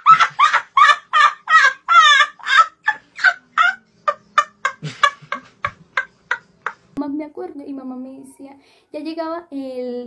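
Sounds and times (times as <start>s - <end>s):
boy laughing hard: 0.0s - 6.1s.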